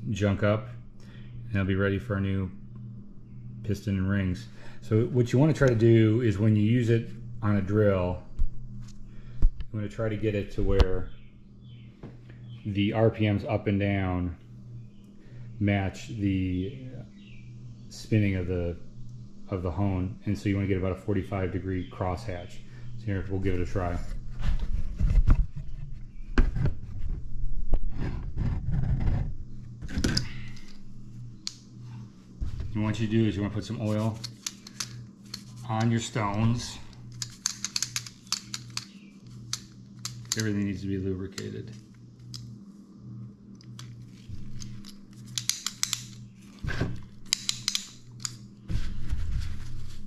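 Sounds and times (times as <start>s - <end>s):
steady low hum: 0.0s - 50.0s
heavy rubbing rumble: 27.8s - 30.0s
sharp clicks of tools: 34.2s - 35.9s, 37.1s - 40.7s, 44.6s - 46.2s, 47.2s - 48.4s.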